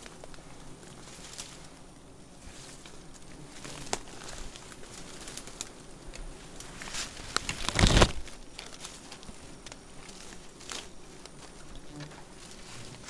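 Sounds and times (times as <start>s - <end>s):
twigs and dry leaves rustling: 0.0s - 13.0s
plastic bag crinkling: 7.2s - 9.2s.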